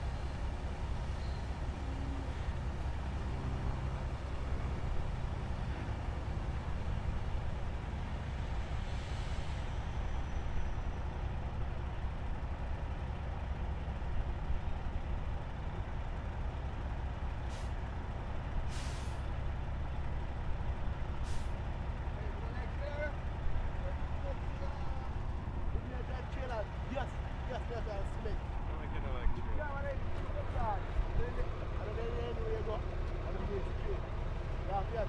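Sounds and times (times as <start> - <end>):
diesel truck engine running: 0.0 - 35.0
brake air hissing: 18.7 - 19.2.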